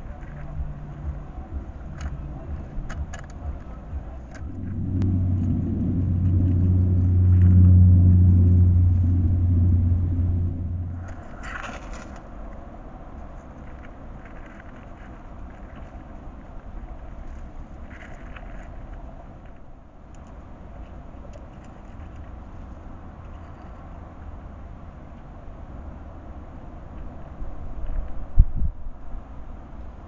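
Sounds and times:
vehicle engine hum: 0:00.0 - 0:27.8.

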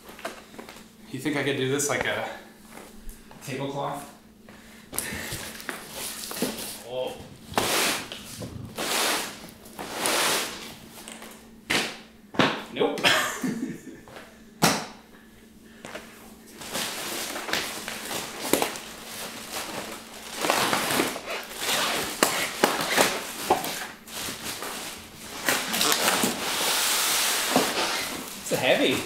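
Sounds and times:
styrofoam and cardboard scraping: 0:07.6 - 0:10.7, 0:19.1 - 0:29.0.

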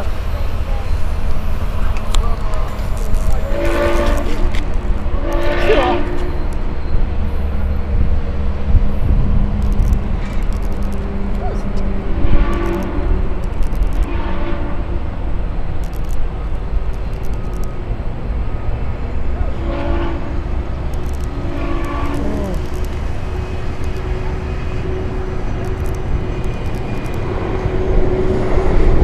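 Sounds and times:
low rumble of train: 0:00.0 - 0:29.0
distant steam whistle: 0:05.2 - 0:06.5.

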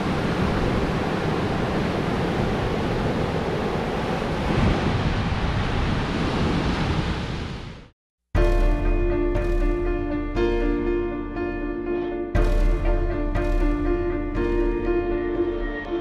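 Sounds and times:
waves washing on beach: 0:00.0 - 0:07.9
wind rumbling on microphone: 0:00.0 - 0:07.9.

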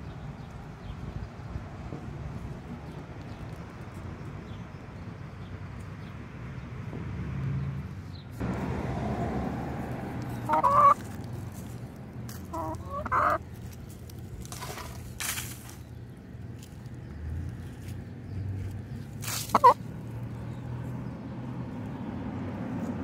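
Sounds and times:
hen clucking: 0:10.4 - 0:11.1, 0:12.4 - 0:13.5, 0:19.3 - 0:19.9.

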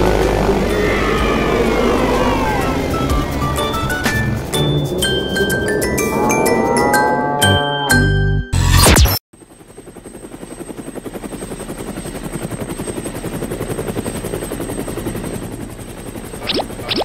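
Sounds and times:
cartoon helicopter rotor chop: 0:16.3 - 0:17.0.

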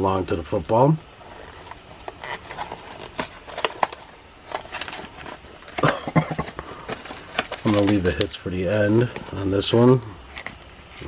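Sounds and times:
cardboard crinkling and clicks: 0:01.6 - 0:08.4.

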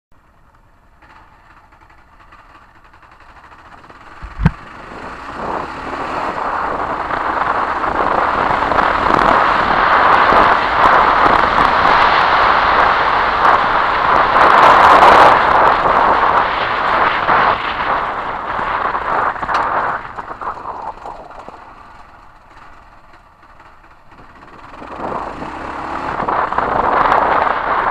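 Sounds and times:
wind rush: 0:04.0 - 0:22.3, 0:24.7 - 0:27.9
sharp knock: 0:04.2 - 0:04.6.

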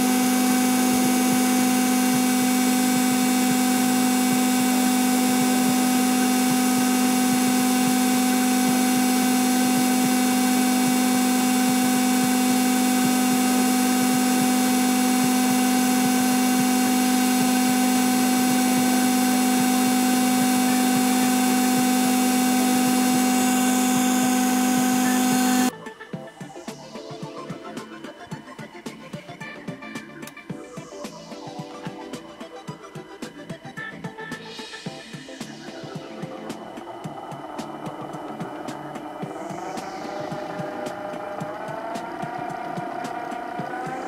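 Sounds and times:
centrifuge droning: 0:00.0 - 0:25.7, 0:35.4 - 0:44.0.

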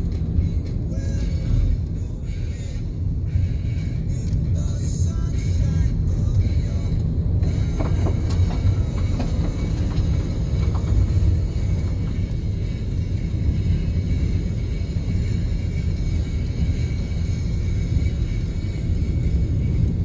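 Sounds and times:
car engine and tyres rumbling: 0:00.0 - 0:20.0.

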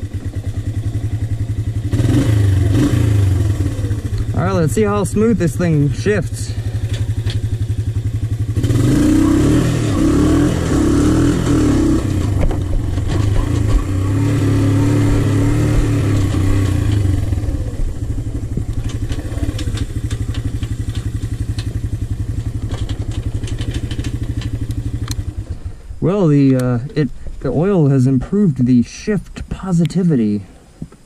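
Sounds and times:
quad engine revving through gears: 0:00.0 - 0:26.3
light clicks and rattles: 0:18.5 - 0:25.6.

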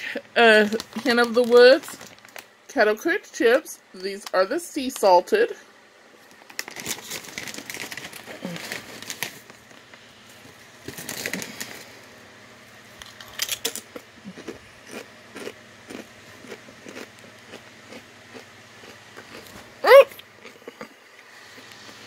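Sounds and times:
chip bag crinkling: 0:00.5 - 0:02.5, 0:06.2 - 0:12.0, 0:12.9 - 0:19.7
potato chips crunching: 0:00.6 - 0:02.5, 0:06.2 - 0:09.6, 0:10.8 - 0:11.9, 0:13.0 - 0:20.9.

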